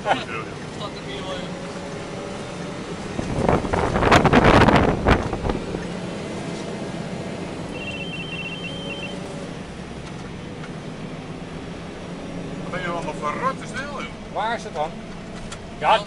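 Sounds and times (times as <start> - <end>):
engine low hum: 0.0 - 16.0
short high beeps: 7.7 - 9.3.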